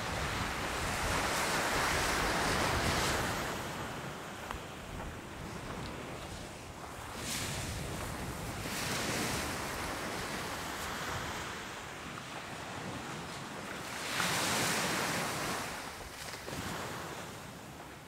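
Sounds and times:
surf breaking on beach: 0.0s - 4.4s, 5.2s - 11.8s
wind on microphone: 0.0s - 18.0s.

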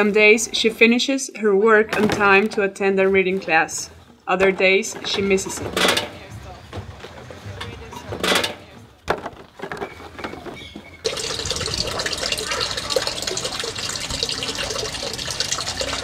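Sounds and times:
running water splashing: 11.1s - 16.0s.

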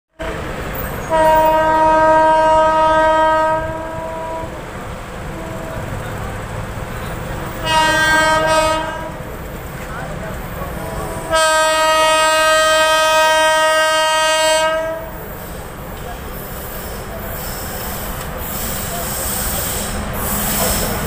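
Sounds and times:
train horn blasts: 0.2s - 4.7s, 5.3s - 6.0s, 7.4s - 9.3s, 10.9s - 15.3s.

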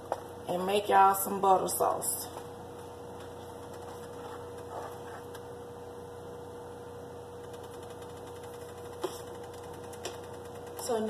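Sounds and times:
steady tonal hum: 0.0s - 11.0s.

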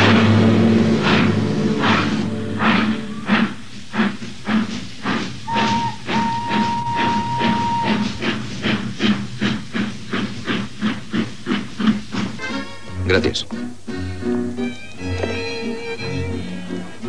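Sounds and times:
steam locomotive chuffing: 0.0s - 17.0s
locomotive whistle blasts: 5.5s - 8.2s.

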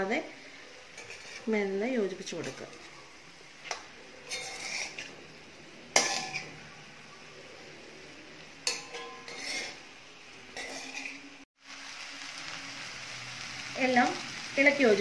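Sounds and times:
steel spoon scraping a pan: 0.5s - 3.0s, 3.6s - 6.8s, 8.6s - 11.4s.

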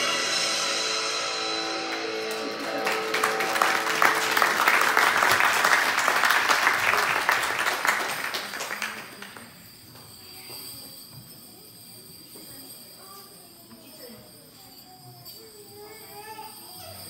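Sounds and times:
audience applause: 1.7s - 9.6s.

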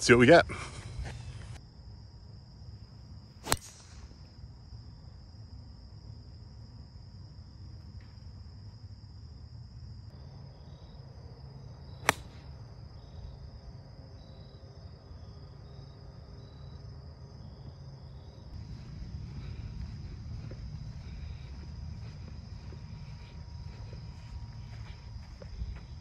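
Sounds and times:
insects chirring: 0.0s - 26.0s
golf club striking ball: 3.4s - 4.1s, 12.0s - 12.4s.

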